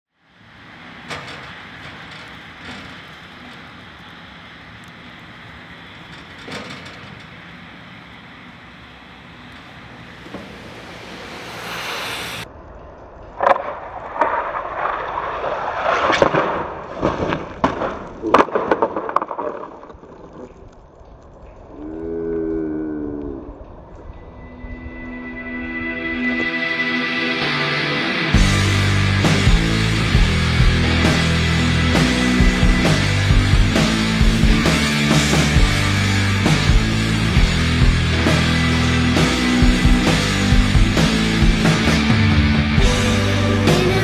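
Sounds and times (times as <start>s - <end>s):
steady hiss: 0.2s - 12.5s
skis clattering on icy concrete: 13.2s - 21.6s.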